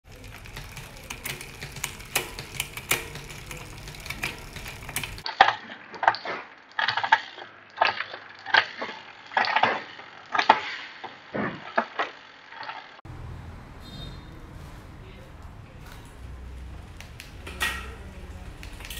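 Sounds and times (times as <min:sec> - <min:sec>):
bicycle chain running on cassette: 0:00.0 - 0:05.3, 0:12.1 - 0:13.0, 0:16.0 - 0:18.9
derailleur shifting clicks: 0:00.1 - 0:05.3.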